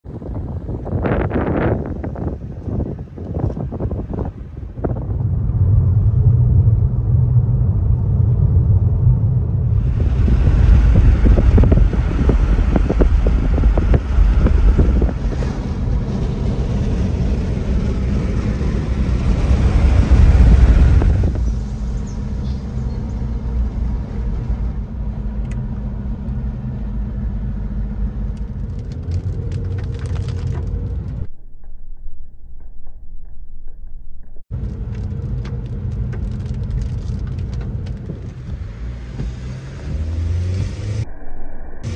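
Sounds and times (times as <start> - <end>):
rushing wind noise: 0.0 - 26.0, 34.5 - 41.9
engine and road rumble: 0.0 - 41.9.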